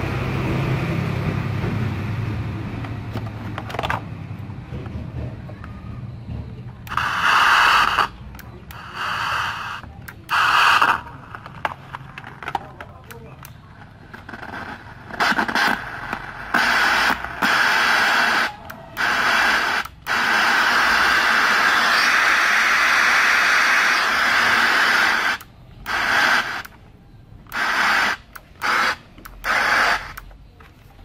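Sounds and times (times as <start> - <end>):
radio static hiss: 6.9 - 26.8, 27.5 - 30.3.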